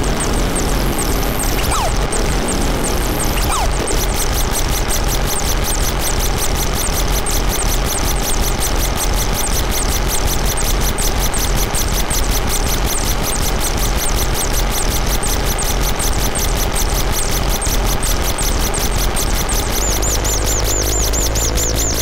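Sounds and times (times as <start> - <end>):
dense wall of synth noise: 0.0 - 6.4
deep drone: 0.0 - 7.8, 19.0 - 22.0.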